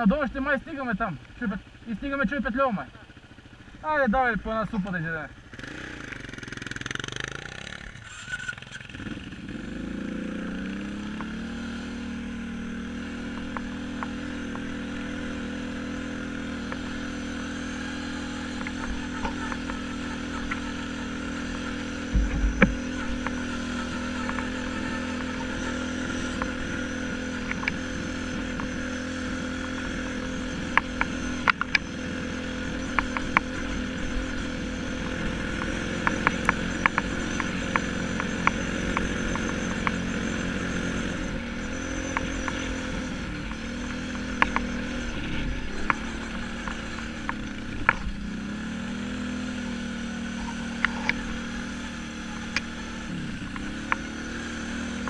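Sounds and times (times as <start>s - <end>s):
quad bike engine pulling away: 0.0s - 55.0s
heavy thump: 22.1s - 22.8s
knocks and rattles: 22.1s - 23.3s
sharp clicks: 29.6s - 32.0s.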